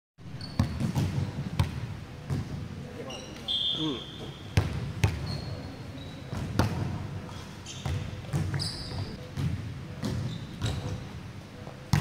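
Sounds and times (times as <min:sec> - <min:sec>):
sneakers squeaking on floor: 0:00.2 - 0:01.5, 0:03.0 - 0:09.3, 0:10.0 - 0:11.2
volleyball smacking and bouncing: 0:00.6 - 0:02.6, 0:04.6 - 0:05.3, 0:06.3 - 0:06.9, 0:07.8 - 0:08.6.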